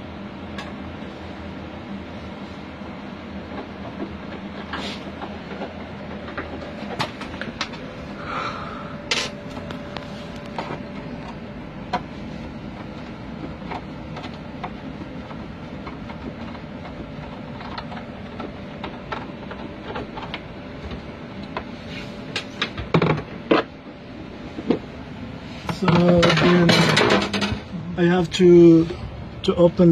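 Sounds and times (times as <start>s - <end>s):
machine hum with held tone: 0.0s - 29.9s.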